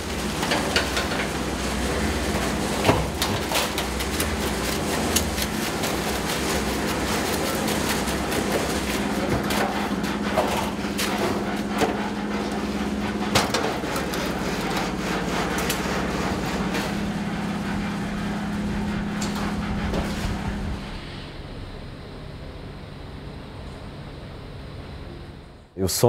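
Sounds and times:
shovel scraping wet concrete: 0:00.0 - 0:17.1
steady machine hum: 0:00.0 - 0:26.0.

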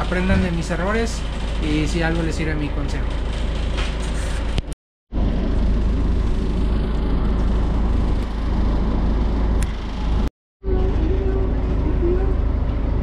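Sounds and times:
road noise: 0:04.5 - 0:13.0
bus engine rumble: 0:05.2 - 0:13.0.

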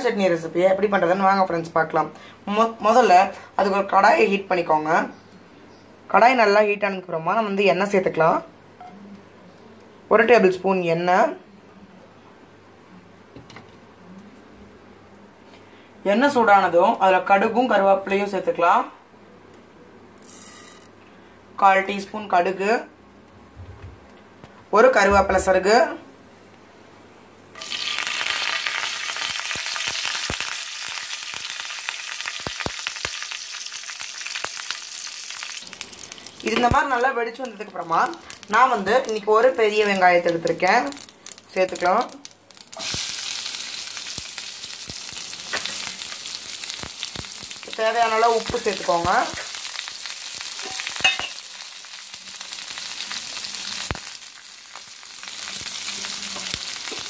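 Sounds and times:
seeds sizzling in hot oil: 0:20.2 - 0:20.9, 0:27.6 - 0:57.0
mustard seeds popping: 0:27.6 - 0:57.0.

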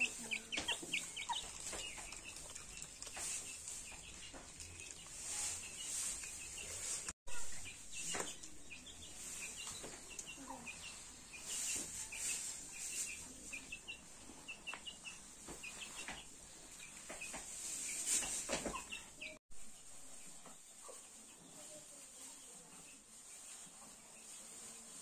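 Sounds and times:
birds chirping: 0:00.0 - 0:19.4
chickens clucking: 0:00.0 - 0:19.4.

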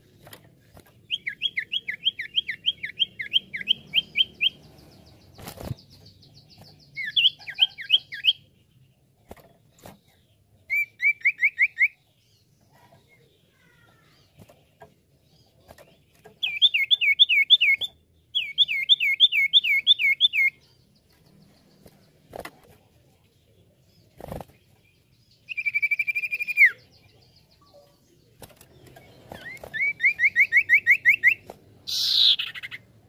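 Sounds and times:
bird whistling song: 0:01.1 - 0:04.7, 0:05.9 - 0:08.4, 0:10.7 - 0:12.0, 0:16.4 - 0:20.7, 0:25.5 - 0:26.9, 0:29.3 - 0:32.8.

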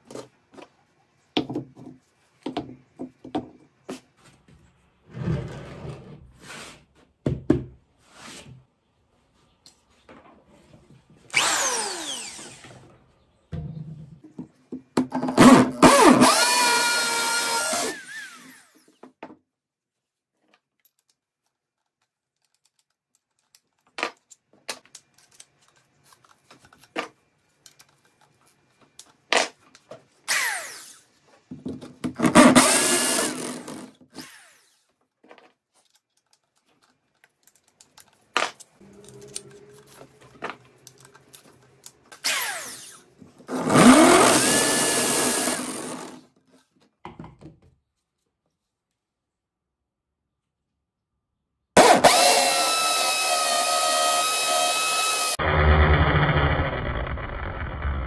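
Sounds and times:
electric drill boring into stone: 0:11.3 - 0:12.8, 0:15.8 - 0:18.9, 0:32.2 - 0:34.8, 0:42.2 - 0:46.2, 0:51.8 - 0:58.0.

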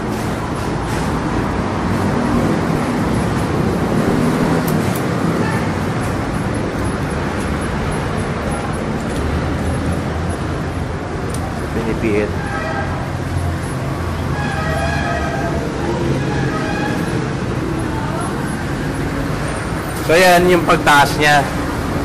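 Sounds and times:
road traffic rumble: 0:00.0 - 0:22.0.

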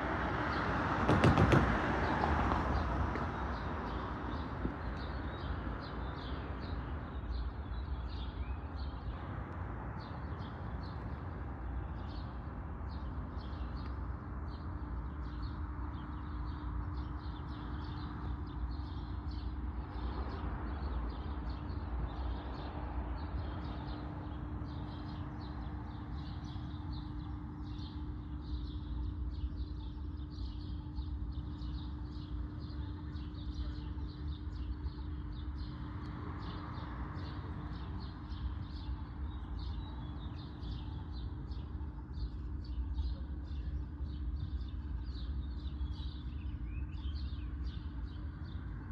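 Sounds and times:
low street rumble: 0:00.0 - 0:48.9
small birds chirping: 0:10.0 - 0:48.9.

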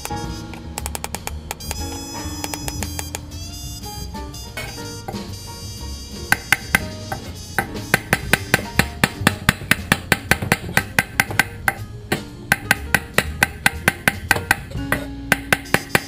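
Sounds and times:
background music: 0:00.0 - 0:16.0
knife chopping on wooden board: 0:06.4 - 0:16.0.

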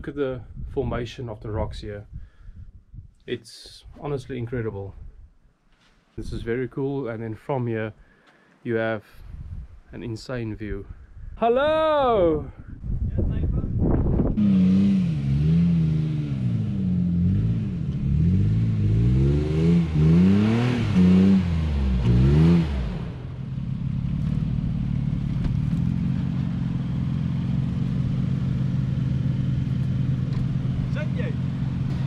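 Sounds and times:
engine revving: 0:14.3 - 0:32.0.

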